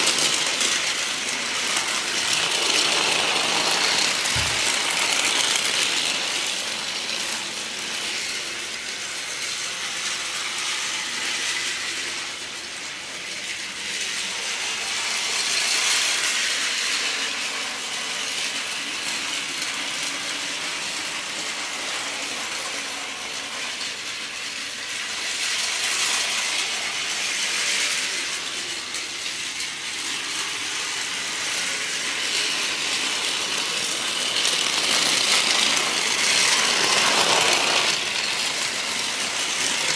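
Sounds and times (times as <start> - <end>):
toy train motor whirring and rattling: 0.0 - 39.9.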